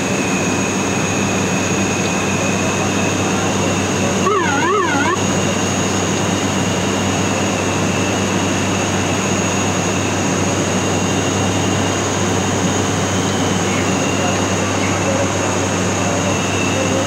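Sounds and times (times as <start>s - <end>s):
turboprop engines droning: 0.0s - 17.0s
warbling electronic tone: 4.2s - 5.2s.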